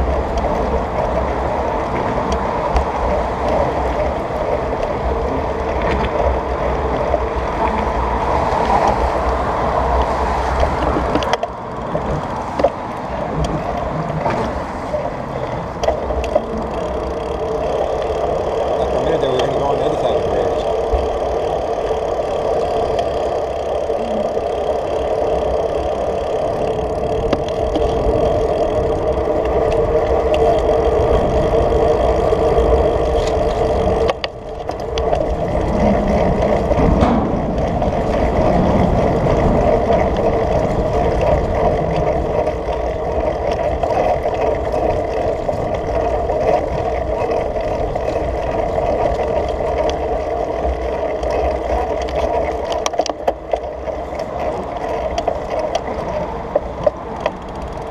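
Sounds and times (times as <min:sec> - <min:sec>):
wind rushing over microphone: 0:00.0 - 0:50.8
tyre rumble: 0:20.4 - 0:52.6.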